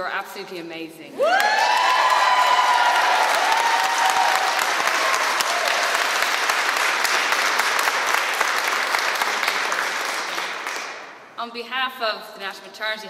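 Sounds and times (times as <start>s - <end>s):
audience applauding: 1.2s - 11.1s.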